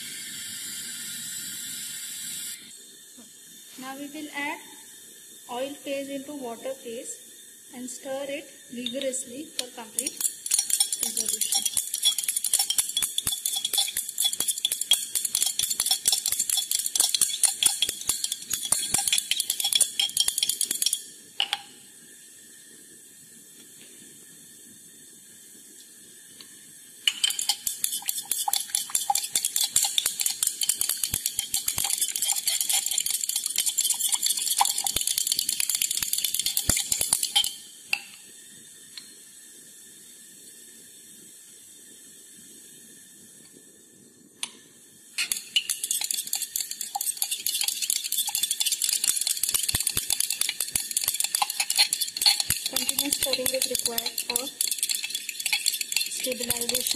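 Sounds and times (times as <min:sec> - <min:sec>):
stirring rod scraping glass dish: 0:10.0 - 0:21.0, 0:27.1 - 0:35.5, 0:45.2 - 0:56.9.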